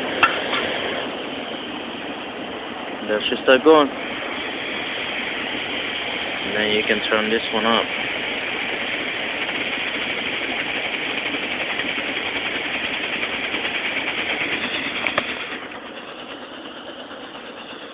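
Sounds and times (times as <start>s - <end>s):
camp stove burner hissing: 0.0s - 17.9s.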